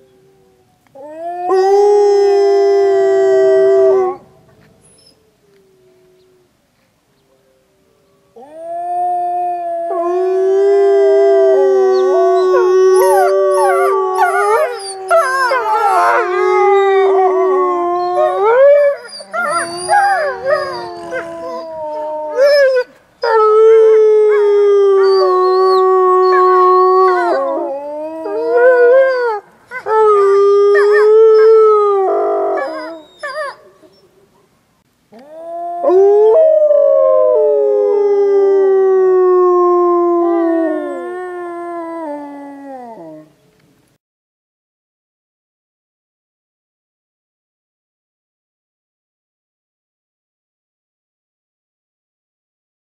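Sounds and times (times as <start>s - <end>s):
wolves howling in chorus: 8.4s - 33.6s.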